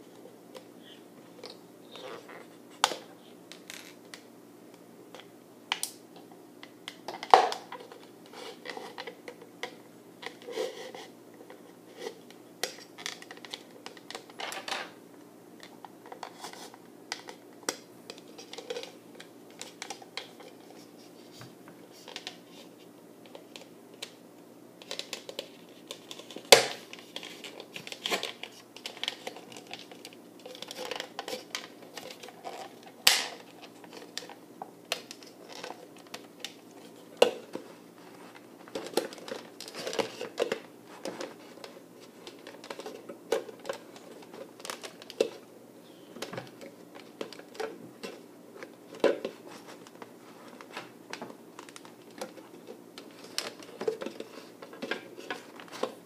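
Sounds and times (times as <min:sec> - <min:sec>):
plastic cup and wire handling: 0:15.6 - 0:24.2, 0:24.8 - 0:56.0.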